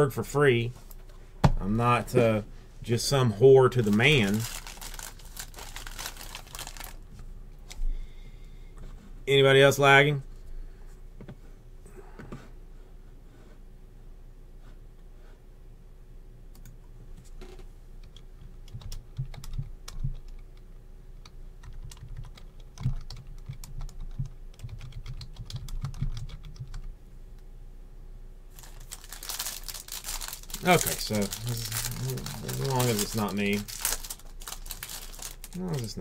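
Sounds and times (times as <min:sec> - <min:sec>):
foil pack crinkling: 0:03.7 - 0:07.0, 0:28.5 - 0:36.0
keyboard typing: 0:18.0 - 0:20.6, 0:21.6 - 0:26.9.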